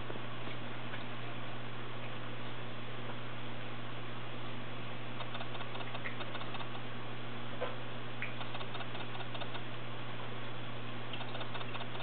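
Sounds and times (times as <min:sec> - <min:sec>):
steady low hum: 0:00.0 - 0:12.0
ticking and splashing: 0:05.2 - 0:06.8, 0:08.2 - 0:09.7, 0:11.1 - 0:12.0.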